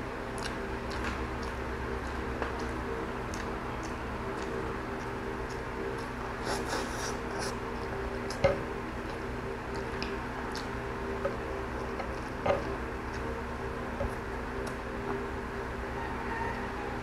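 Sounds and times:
steady background hum: 0.0 - 17.0
person chewing: 0.3 - 13.4.

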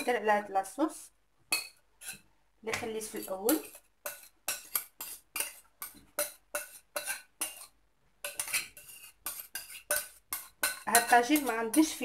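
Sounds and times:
spoon scraping a bowl: 1.5 - 12.0.

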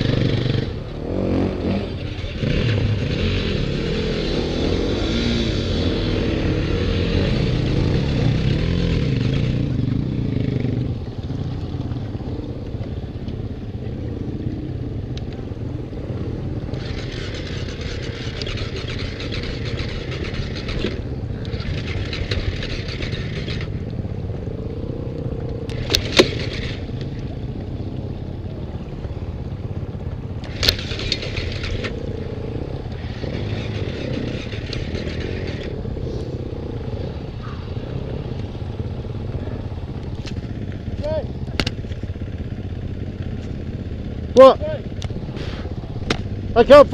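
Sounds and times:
dirt bike engine idling: 0.0 - 46.9
sharp clicks: 25.4 - 27.2, 30.4 - 32.0, 32.9 - 35.8, 41.4 - 42.0.

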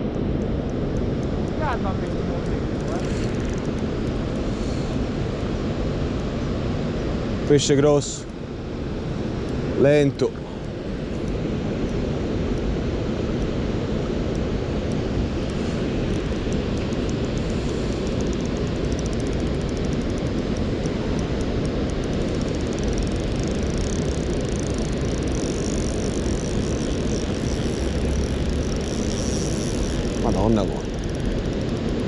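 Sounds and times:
river water pouring over weir: 14.0 - 32.0.

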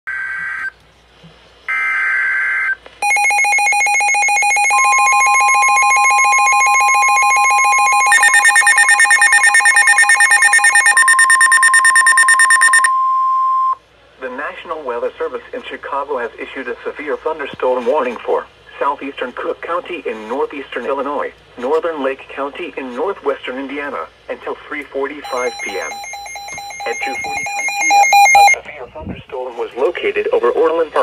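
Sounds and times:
radio alert beeping: 3.0 - 12.9, 25.2 - 28.6
steady warning alarm tone: 3.0 - 13.8, 25.2 - 28.6.

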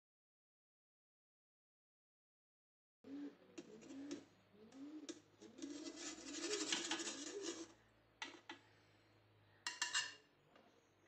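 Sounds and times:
metal spatula scraping metal tray: 5.4 - 7.7.

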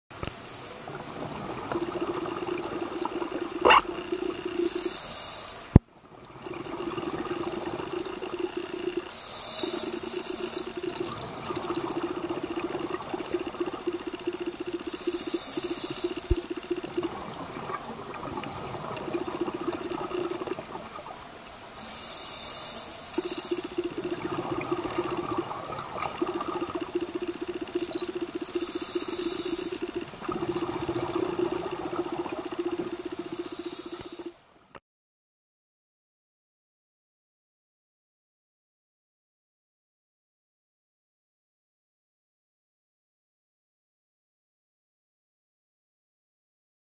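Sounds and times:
crackling rattle of exhaled bubbles: 0.1 - 34.4
hissing regulator inhalations: 0.2 - 1.0, 3.3 - 5.8, 7.4 - 17.3, 21.7 - 34.4.

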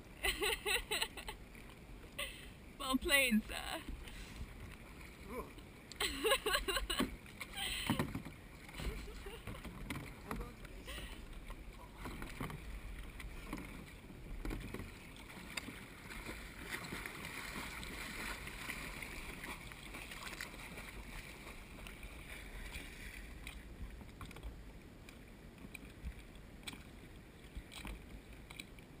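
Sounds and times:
water lapping against kayak: 0.0 - 29.0.

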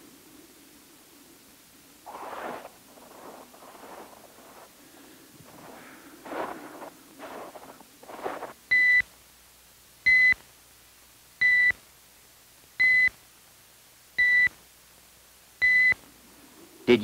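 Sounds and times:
short rustling: 2.1 - 8.6.

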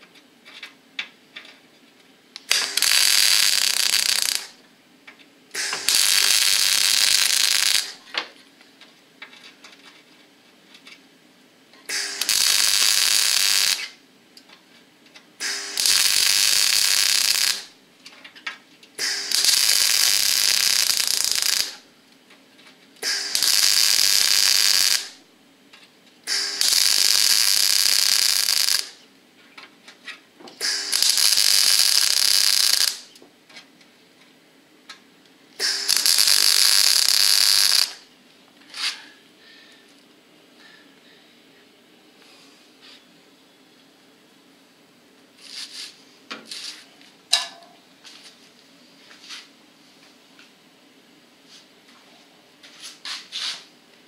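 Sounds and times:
welding arc sparking: 2.4 - 4.6, 5.5 - 8.0, 11.9 - 14.0, 15.4 - 17.8, 19.0 - 21.8, 23.0 - 25.3, 26.3 - 29.0, 30.5 - 33.2, 35.6 - 38.1.

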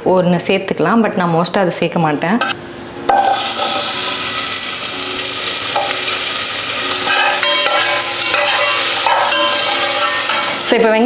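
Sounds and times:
onions sizzling in butter: 3.1 - 11.0
metal spoon stirring: 5.4 - 10.8.

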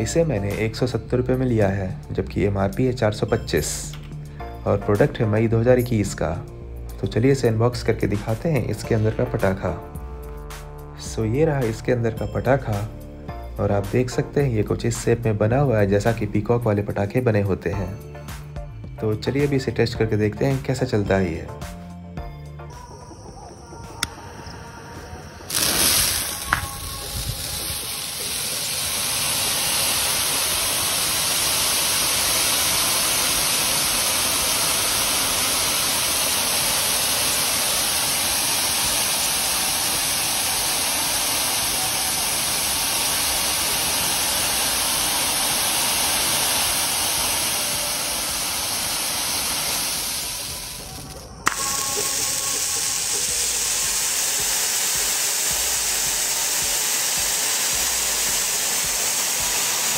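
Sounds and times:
firework fountain hissing: 0.0 - 9.6, 22.7 - 59.9.

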